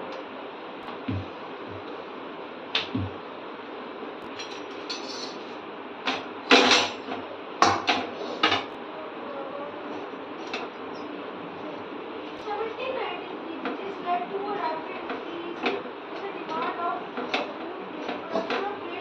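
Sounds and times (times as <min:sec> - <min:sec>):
metal tongs clanking on pan: 0:04.4 - 0:05.5.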